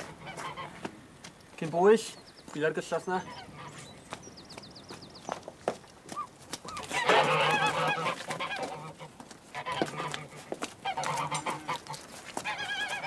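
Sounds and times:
geese honking: 0.0s - 0.9s, 2.9s - 3.9s, 6.2s - 13.0s.

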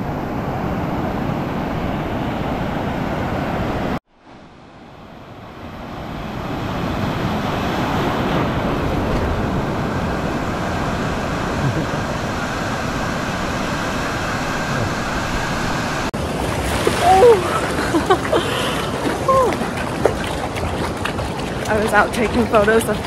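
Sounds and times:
surf washing up shallows: 0.0s - 23.0s.

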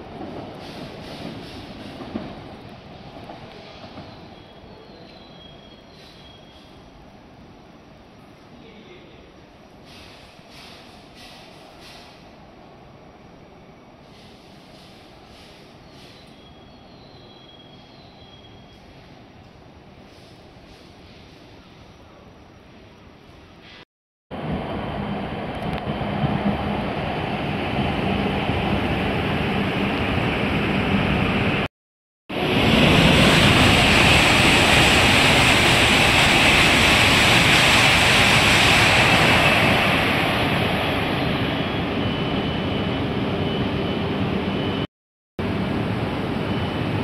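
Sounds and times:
high-speed train rushing roar: 0.0s - 5.0s, 24.3s - 31.7s, 32.3s - 47.0s.

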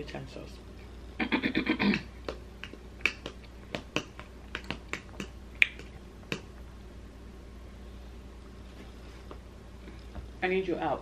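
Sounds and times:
eating clicks: 2.2s - 6.6s.

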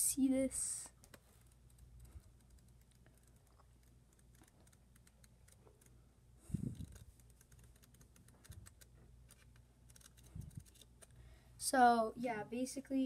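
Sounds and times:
flipbook pages ticking: 1.0s - 6.0s, 6.7s - 11.2s.

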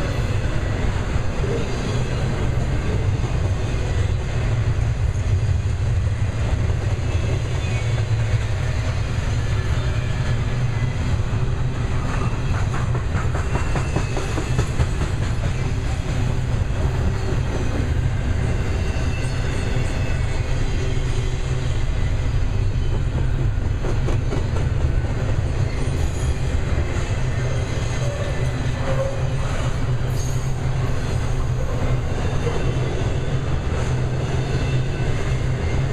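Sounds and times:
steel wheels rumbling on rail: 0.0s - 35.9s
wheels clacking over rail joints: 11.9s - 20.0s.

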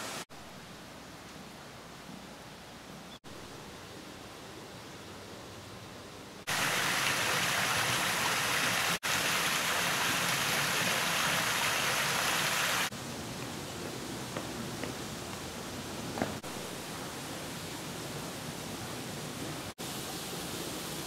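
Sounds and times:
faint outdoor hiss: 0.0s - 21.0s
water cascading over rock: 6.5s - 12.9s
water gushing from stone spouts: 6.5s - 12.9s.

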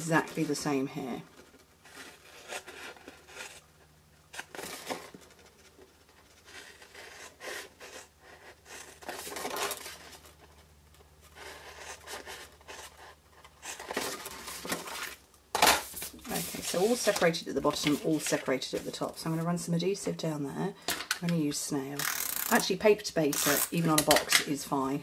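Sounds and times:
paper rustling: 4.3s - 19.5s.

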